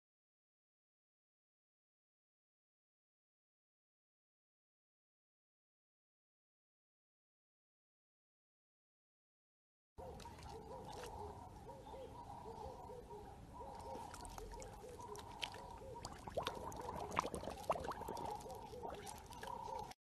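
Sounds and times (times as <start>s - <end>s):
water splashing and lapping: 10.0s - 11.4s, 13.6s - 20.0s.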